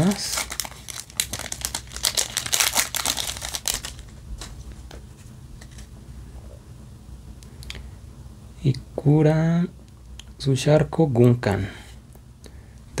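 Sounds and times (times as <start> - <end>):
foil wrapper crinkling: 0.0 - 4.8.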